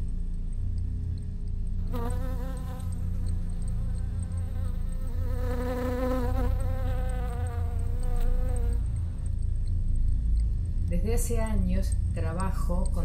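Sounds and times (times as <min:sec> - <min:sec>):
steady low bass: 0:08.4 - 0:13.0.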